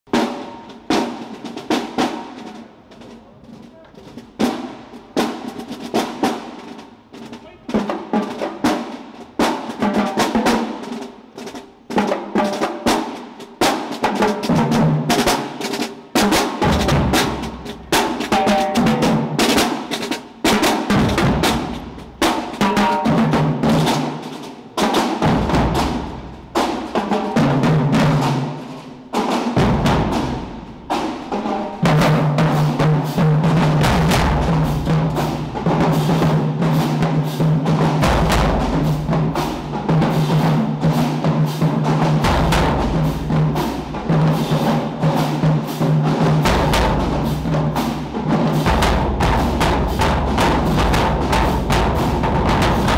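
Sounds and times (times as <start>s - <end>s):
tenor drums: 0.0s - 52.9s
snare drum rolls: 0.1s - 52.9s
heavy bass drums: 29.6s - 45.0s, 46.2s - 52.9s.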